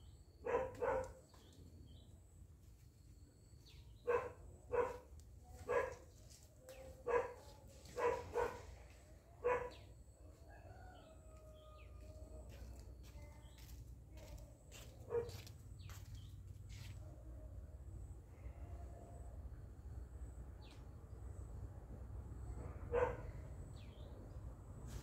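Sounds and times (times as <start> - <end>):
dog barking: 0.4 - 1.2, 4.0 - 6.1, 7.0 - 8.8, 9.4 - 9.9, 15.1 - 15.4, 22.8 - 23.4.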